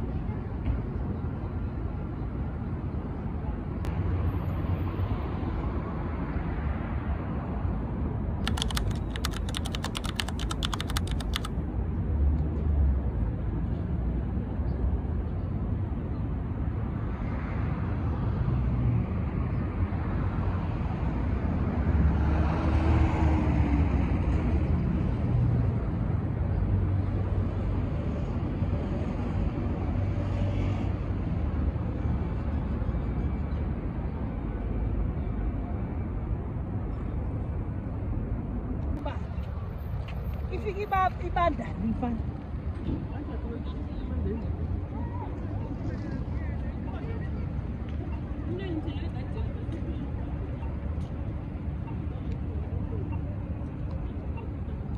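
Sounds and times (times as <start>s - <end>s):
street traffic rumble: 0.0s - 54.9s
rapid sharp clicks: 8.4s - 11.5s.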